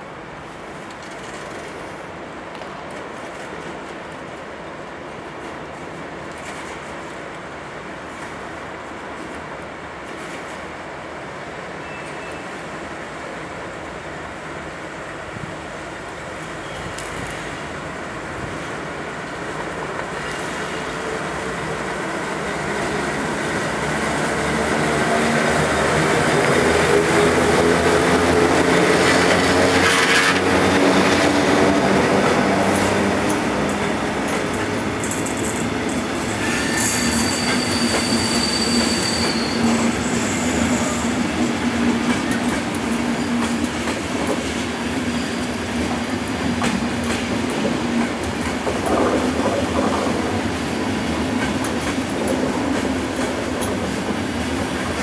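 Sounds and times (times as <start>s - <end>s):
electric locomotive whine: 15.0s - 55.0s
high wheel squeal: 36.3s - 41.2s.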